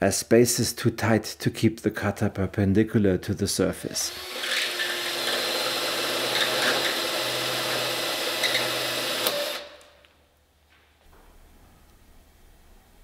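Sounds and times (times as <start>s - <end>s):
cutter cutting sheet steel: 4.0s - 9.8s
cordless drill motor: 4.1s - 9.9s.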